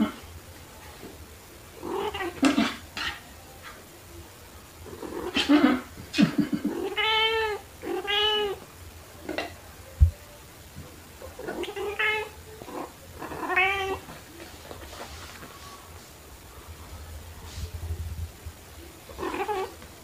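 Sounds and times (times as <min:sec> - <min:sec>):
cat meowing: 0:01.8 - 0:02.8, 0:06.7 - 0:08.6, 0:11.4 - 0:14.1, 0:19.2 - 0:19.8.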